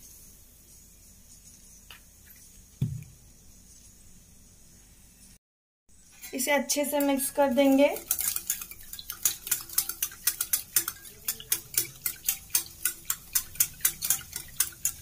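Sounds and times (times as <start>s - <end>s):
whisk clicking against metal bowl: 6.2s - 15.0s.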